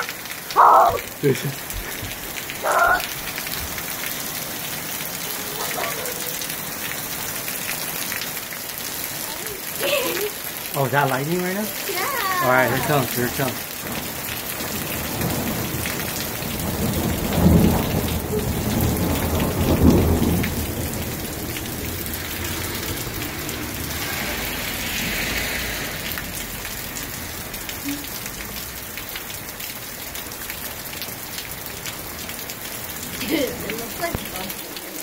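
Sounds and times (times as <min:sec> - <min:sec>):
steady rain falling: 0:00.0 - 0:35.0
thunder rumbling: 0:13.8 - 0:26.4.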